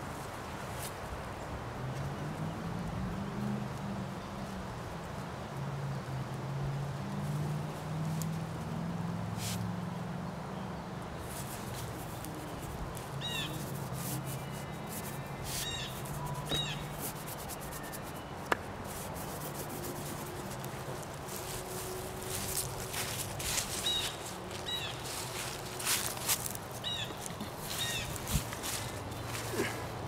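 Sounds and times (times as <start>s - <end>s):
paintbrush rubbing on board: 11.3s - 24.1s
short high calls: 14.2s - 18.2s.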